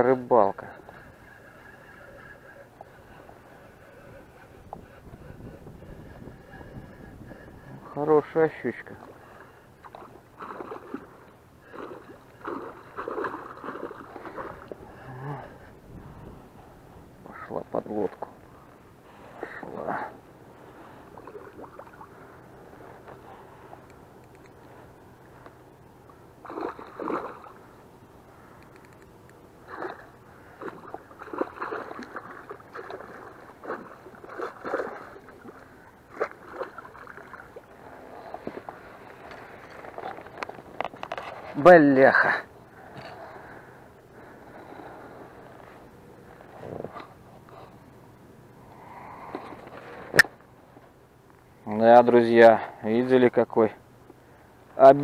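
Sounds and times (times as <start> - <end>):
fish thrashing and splashing: 9.8 - 14.8, 26.4 - 27.6, 29.7 - 37.7
fish splashing at the surface: 26.4 - 27.6.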